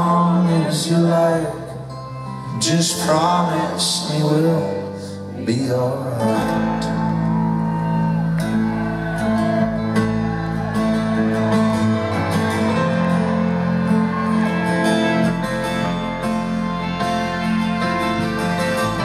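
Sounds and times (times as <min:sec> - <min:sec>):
strummed acoustic guitar: 0:00.0 - 0:19.0
low bass notes: 0:05.3 - 0:19.0
picked banjo: 0:05.3 - 0:19.0.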